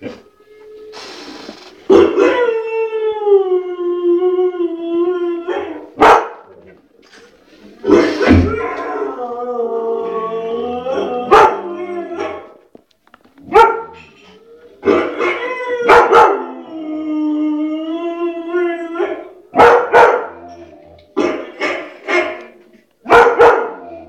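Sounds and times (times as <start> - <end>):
dog howling: 1.9 - 6.0, 7.9 - 12.6, 13.5 - 21.6, 23.1 - 24.0
dog barking: 5.6 - 6.5, 11.3 - 11.6, 13.5 - 14.0, 14.9 - 16.4, 19.0 - 20.4, 21.2 - 23.9.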